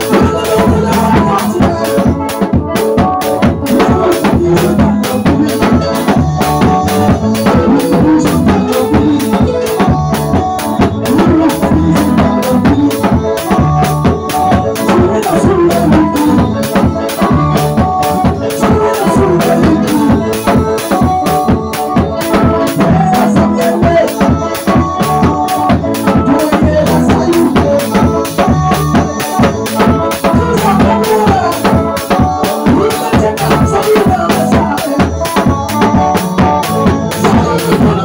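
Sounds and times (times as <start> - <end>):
drum kit beat: 0.0 - 38.0
held instrument notes: 0.0 - 38.0
man singing into microphone: 0.0 - 38.0.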